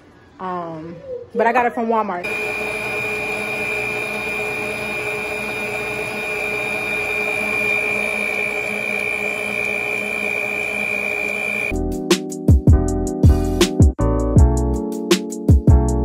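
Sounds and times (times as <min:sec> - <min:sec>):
stand mixer motor whine: 0:02.2 - 0:11.7.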